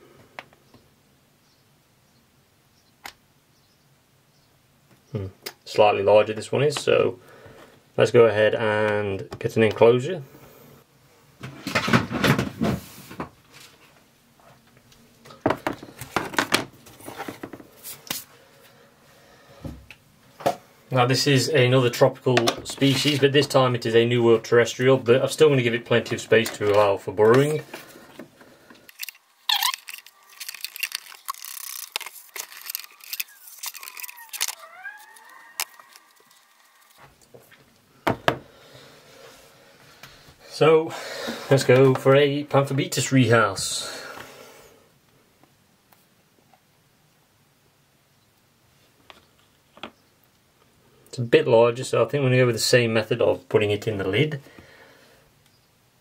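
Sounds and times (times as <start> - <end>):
plastic containers rustling and knocking: 11.4 - 13.9, 15.2 - 17.9, 25.9 - 34.5
plastic knocking and clattering: 15.4 - 17.7
short squeaks: 29.5 - 36.0.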